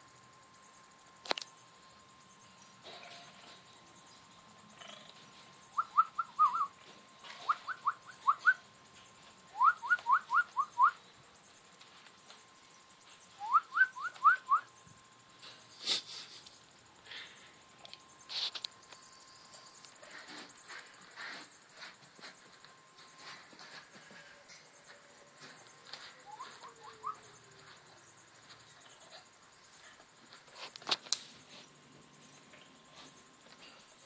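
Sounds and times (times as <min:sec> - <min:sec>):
faint steady tone: 0:00.0 - 0:34.0
raccoon chirping: 0:04.8 - 0:08.7, 0:25.9 - 0:27.7.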